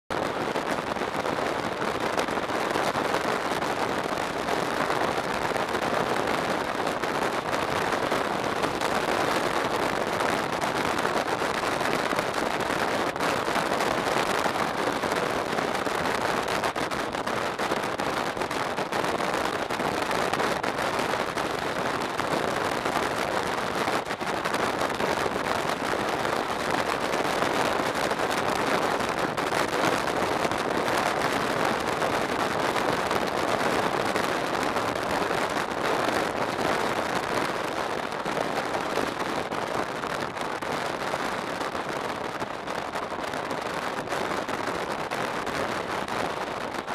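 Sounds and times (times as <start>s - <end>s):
motorcycle wind and road noise: 3.1s - 36.6s.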